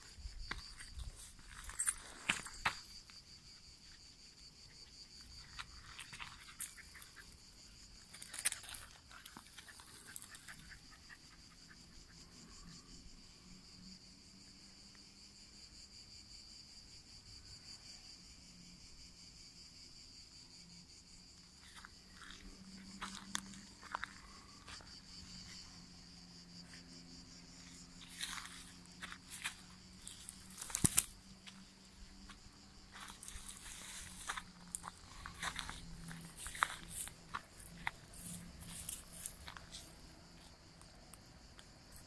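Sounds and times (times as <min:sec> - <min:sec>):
insects chirring: 0:00.0 - 0:42.0
footsteps crunching on dry earth: 0:05.1 - 0:07.1, 0:21.6 - 0:25.7, 0:26.6 - 0:40.6.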